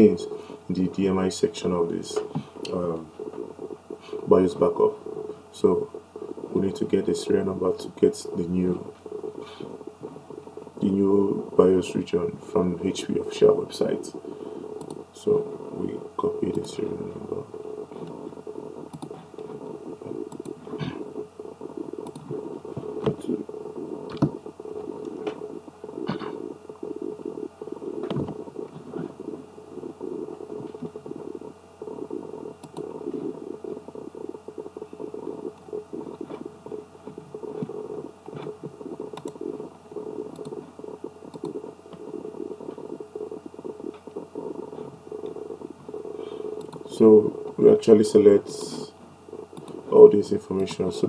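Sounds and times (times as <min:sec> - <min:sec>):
low background rumble: 0:00.0 - 0:51.0
mouse and keyboard clicks: 0:14.8 - 0:15.0, 0:18.8 - 0:20.8, 0:22.0 - 0:25.5, 0:32.0 - 0:33.3, 0:37.1 - 0:39.6, 0:40.2 - 0:40.7, 0:41.3 - 0:45.6, 0:46.4 - 0:47.7.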